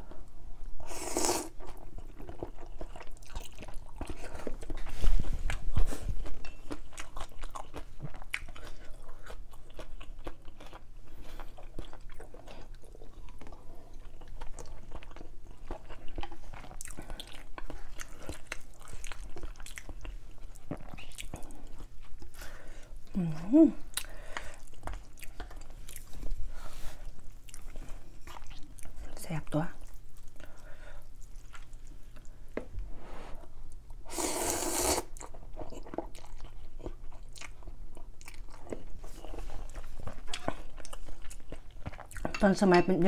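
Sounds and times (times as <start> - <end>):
person slurping noodles: 0.8 - 1.6, 34.1 - 35.2
wet chewing: 1.5 - 22.4, 23.8 - 29.1, 34.8 - 42.5.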